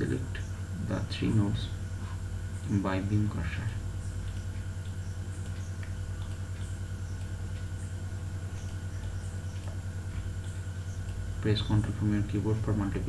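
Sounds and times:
pulsing low hum: 0.0 - 13.0
faint clicks: 4.2 - 11.2.

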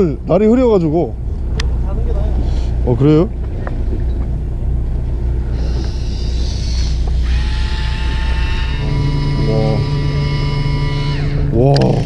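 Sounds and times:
boat engine humming: 0.0 - 12.0
mechanical whine: 2.7 - 12.0.

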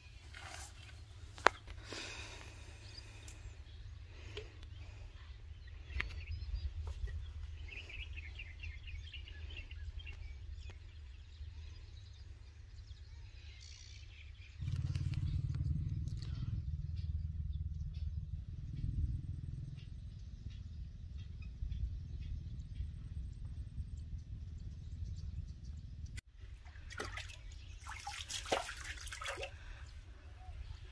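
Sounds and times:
small birds twittering: 0.0 - 30.9
steady low rumble: 14.2 - 26.8.

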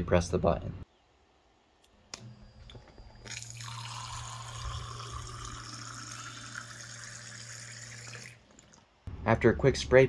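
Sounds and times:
water pump humming: 2.1 - 8.9
water spraying into a glass: 3.2 - 8.8.

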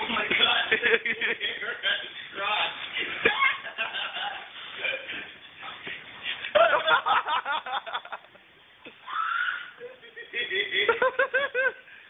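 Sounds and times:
people laughing: 0.0 - 1.7, 3.0 - 5.4, 6.4 - 8.4, 9.8 - 11.9.

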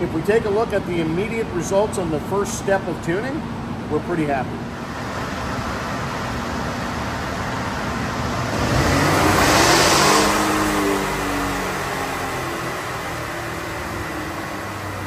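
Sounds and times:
steady fan noise: 0.0 - 15.0
engine revving on dyno: 4.8 - 15.0.

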